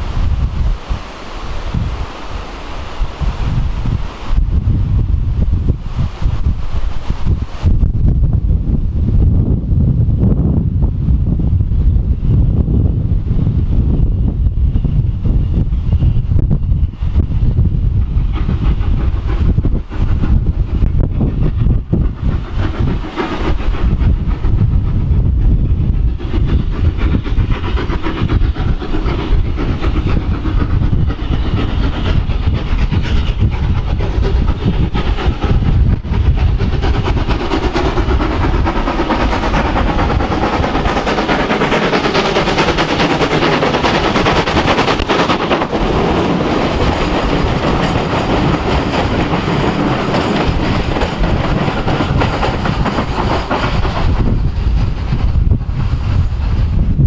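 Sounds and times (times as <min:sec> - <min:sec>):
steam locomotive passing: 0:00.0 - 0:57.0
wheels clattering over rail joints: 0:33.9 - 0:55.8.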